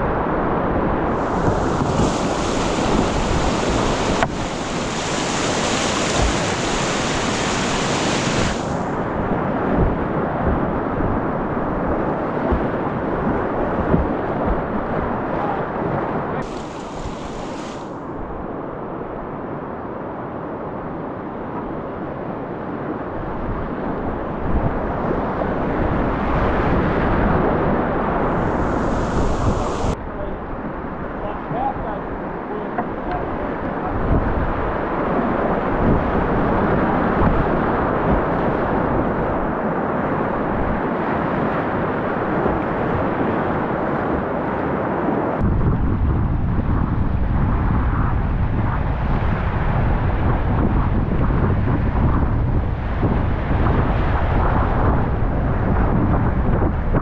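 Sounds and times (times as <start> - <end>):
whitewater rapids roaring: 1.0 - 17.9.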